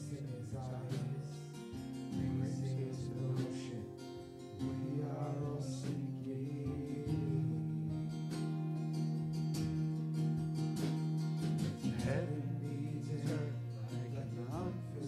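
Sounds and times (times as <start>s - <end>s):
strummed acoustic guitar worship music: 0.0s - 15.0s.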